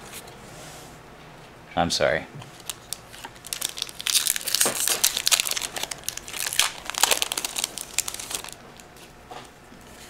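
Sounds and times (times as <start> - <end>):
foil wrapper crinkling: 2.5 - 9.0.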